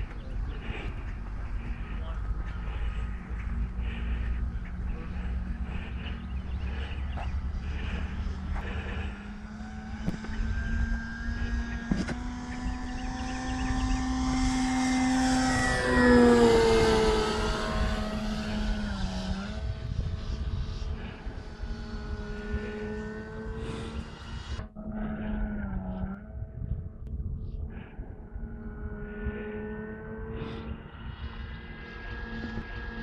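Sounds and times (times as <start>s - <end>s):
model plane motor whining: 0.0s - 26.2s.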